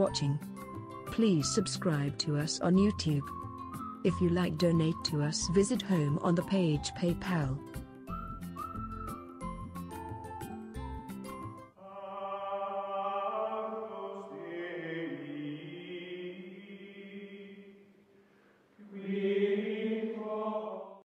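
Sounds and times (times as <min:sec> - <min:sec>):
held choral chords: 0:11.8 - 0:17.9, 0:18.8 - 0:21.0.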